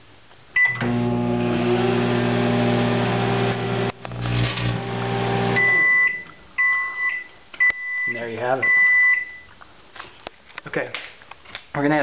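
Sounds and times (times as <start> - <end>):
microwave oven humming: 0.5 - 6.6
microwave beeps: 0.6 - 9.5.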